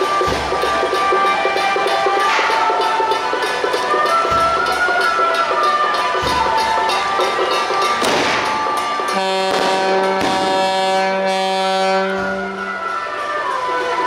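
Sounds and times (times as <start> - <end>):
festival music with percussion: 0.0 - 14.0
low steady horn: 9.1 - 13.0.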